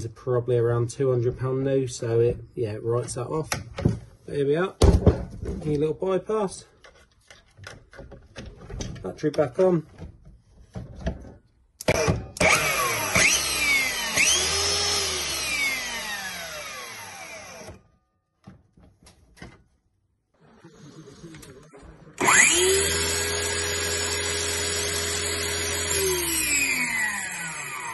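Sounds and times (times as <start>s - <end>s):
circular saw motor whine: 12.4s - 17.8s, 22.2s - 27.9s.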